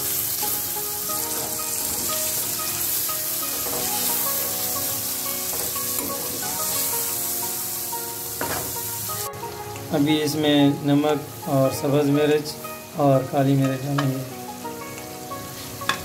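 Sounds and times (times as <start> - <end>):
meat sizzling in hot oil: 0.0 - 16.0
metal spoon stirring: 3.5 - 4.4.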